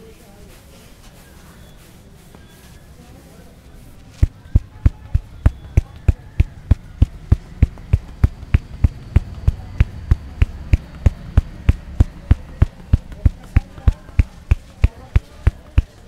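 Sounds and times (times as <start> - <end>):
head massage thuds: 4.2 - 16.0.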